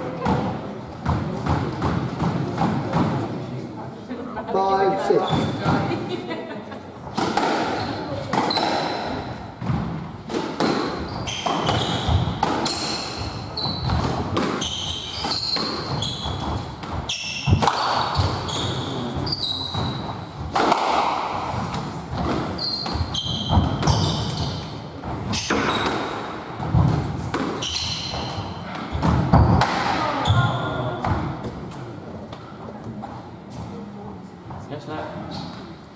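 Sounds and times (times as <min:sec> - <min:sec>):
court shoes squeaking: 0:05.0 - 0:05.9, 0:07.0 - 0:20.8, 0:21.4 - 0:33.8
squash ball struck by rackets: 0:07.1 - 0:30.2.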